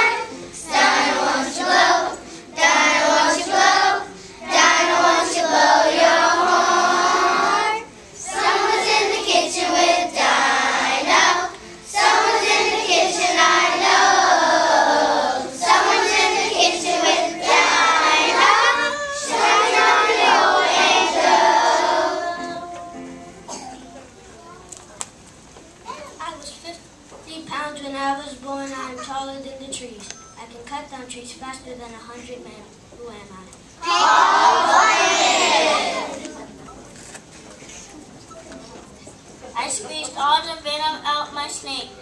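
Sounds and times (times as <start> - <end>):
children singing in unison: 0.0 - 23.6, 33.8 - 36.3.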